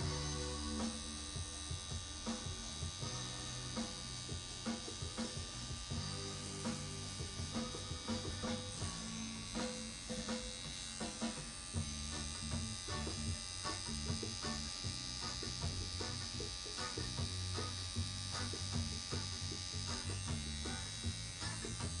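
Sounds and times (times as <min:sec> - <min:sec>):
tattoo machine buzzing: 0:00.0 - 0:22.0.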